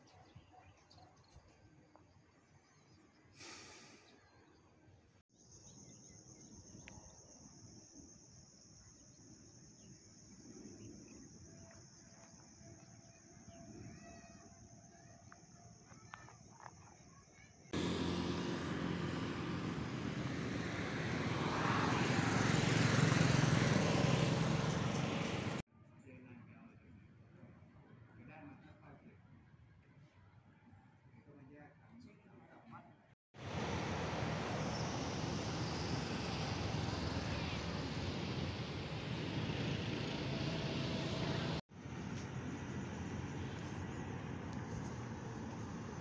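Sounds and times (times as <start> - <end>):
wind: 0.0 - 46.0
rush of hiss: 3.4 - 4.0
insect trill: 5.3 - 17.2
road noise: 17.7 - 25.7, 33.4 - 46.0
vehicle engine droning: 17.8 - 25.6, 33.4 - 46.0.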